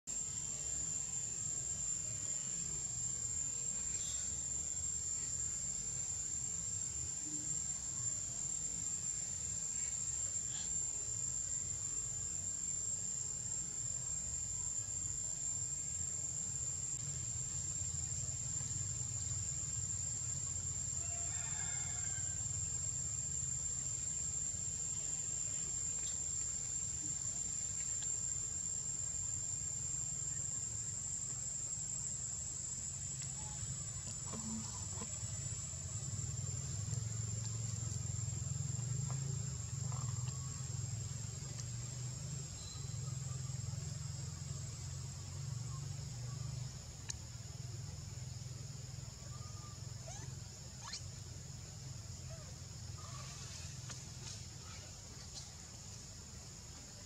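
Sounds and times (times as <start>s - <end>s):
insects droning: 0.0s - 57.0s
faint chirps and clicks: 25.8s - 28.4s, 36.1s - 43.4s, 47.0s - 47.3s.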